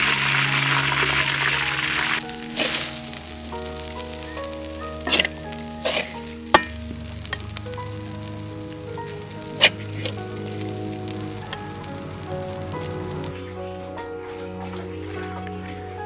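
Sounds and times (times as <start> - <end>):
background music of held notes: 0.0 - 16.0
metal spatula scraping a wok: 5.0 - 7.5.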